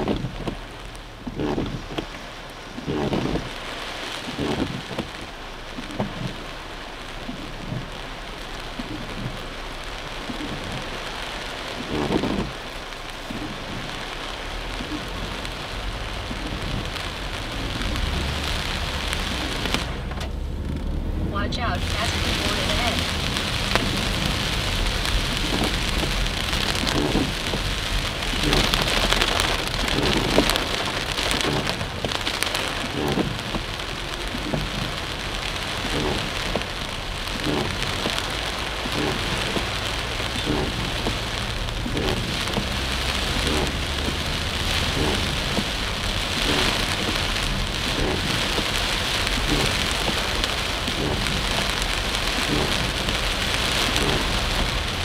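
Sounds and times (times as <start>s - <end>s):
car road rumble: 0.0s - 55.0s
heavy rain on car roof: 0.0s - 55.0s.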